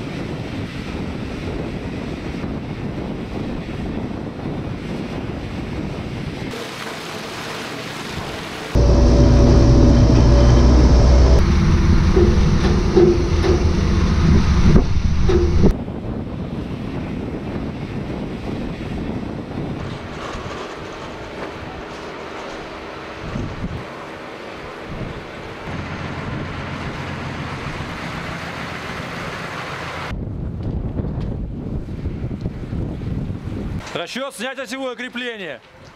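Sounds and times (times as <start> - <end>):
wind rumble on microphone: 0.0 - 6.6, 8.8 - 23.9, 30.1 - 33.9
rhythmic clatter: 8.8 - 15.7
heavy machinery running: 8.8 - 15.8
heavy vehicle engine rumble: 8.8 - 15.8, 24.6 - 30.1.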